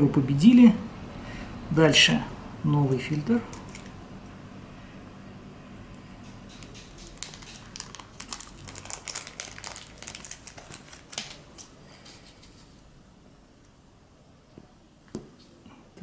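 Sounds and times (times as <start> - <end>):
plastic packet crinkling: 3.5 - 4.0, 6.5 - 12.6.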